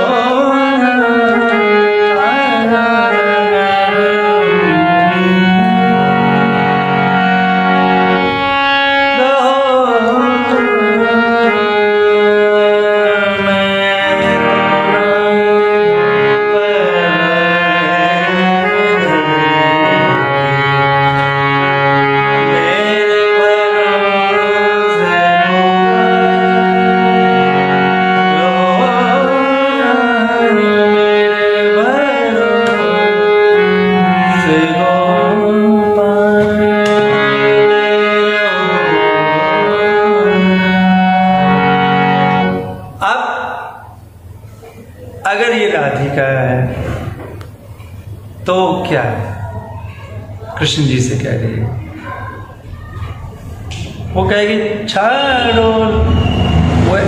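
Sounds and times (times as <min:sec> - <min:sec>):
man singing: 0:00.0 - 0:06.6, 0:09.0 - 0:20.7, 0:22.3 - 0:41.6, 0:54.2 - 0:57.0
harmonium chords: 0:00.0 - 0:57.0.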